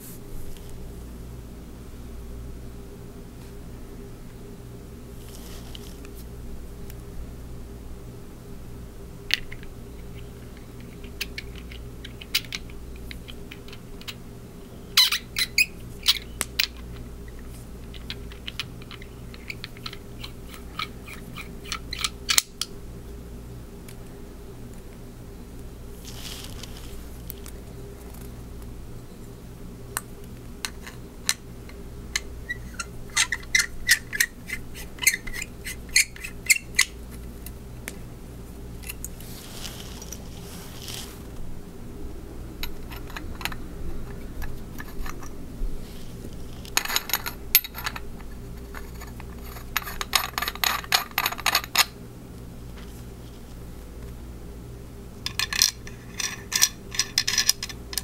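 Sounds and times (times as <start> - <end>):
metal parts clicking and tapping: 9.3 - 14.2, 15.0 - 22.7, 30.0 - 37.0, 42.6 - 45.3, 46.6 - 51.9, 55.2 - 58.0.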